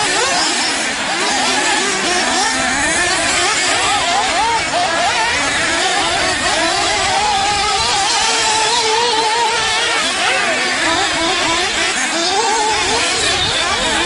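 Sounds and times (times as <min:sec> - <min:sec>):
rc buggy engines revving: 0:00.0 - 0:14.0.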